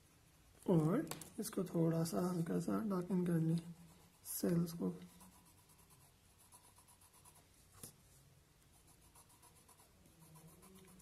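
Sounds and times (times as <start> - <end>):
pencil scratching on paper: 3.2 - 8.0, 8.7 - 11.0.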